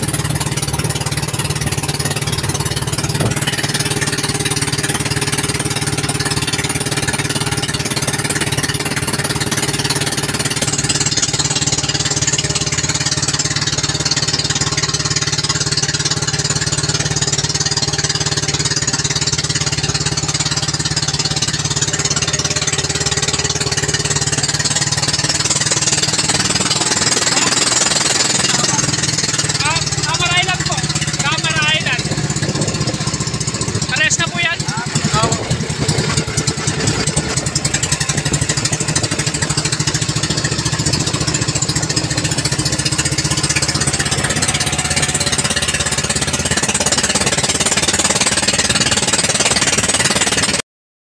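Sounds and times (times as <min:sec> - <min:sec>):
rushing water and wind: 0:00.0 - 0:13.5, 0:22.8 - 0:48.9
boat engine rattling drone: 0:00.0 - 0:50.6.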